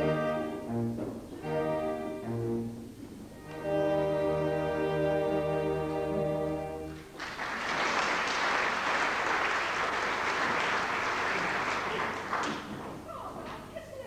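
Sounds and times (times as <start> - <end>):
audience applauding: 6.9 - 13.1.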